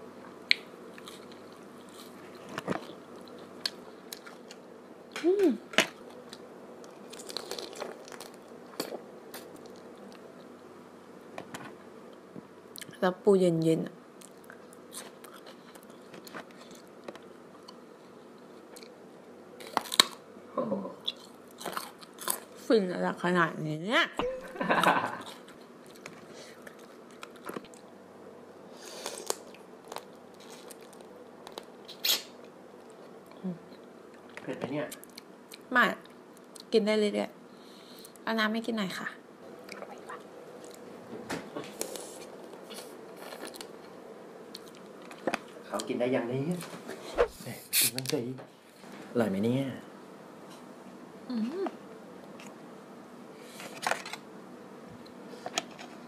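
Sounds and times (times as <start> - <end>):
faint steady hum: 0.0 - 56.0
chewing: 0.5 - 4.6, 5.9 - 10.5, 14.2 - 17.8, 25.2 - 27.9, 29.0 - 33.4, 41.7 - 45.6
person chewing crab: 5.8 - 10.5, 28.9 - 33.3.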